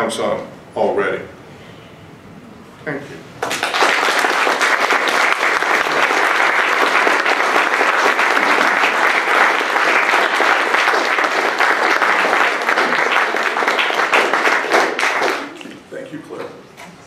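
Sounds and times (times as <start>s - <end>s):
audience applauding: 3.4s - 15.8s.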